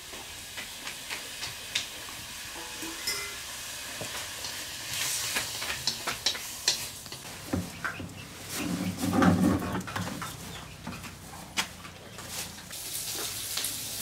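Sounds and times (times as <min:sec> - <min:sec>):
meat sizzling in a wok: 0:00.0 - 0:08.6, 0:12.7 - 0:14.0
scrapes and clicks in a wok: 0:04.0 - 0:07.9.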